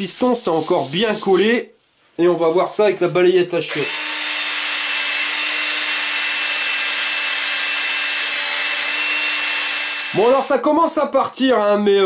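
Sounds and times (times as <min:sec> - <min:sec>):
drill motor hum: 0:03.7 - 0:10.4.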